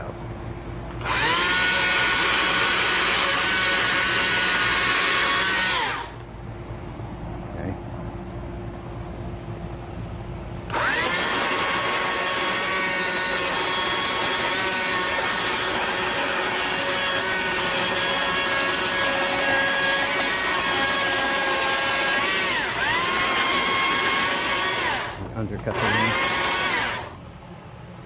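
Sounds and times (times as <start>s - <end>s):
chainsaw cutting wood: 1.0s - 6.2s, 10.7s - 27.2s.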